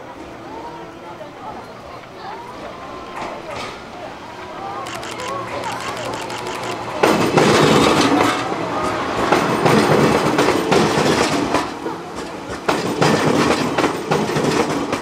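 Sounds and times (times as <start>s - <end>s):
train running rumble: 3.2s - 15.0s
wheels clacking over rail joints: 5.2s - 15.0s.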